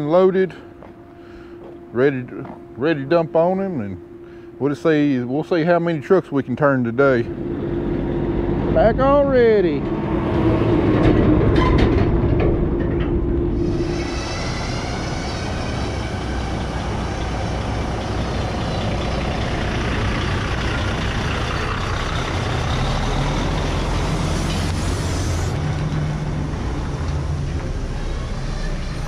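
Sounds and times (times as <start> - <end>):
diesel truck engine running: 6.6 - 29.0
air hiss: 13.6 - 17.2, 24.2 - 25.7.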